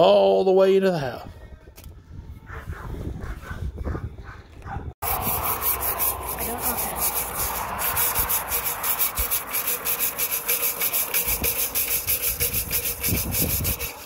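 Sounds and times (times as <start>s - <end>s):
brush scrubbing inside metal pipe: 5.0s - 14.0s.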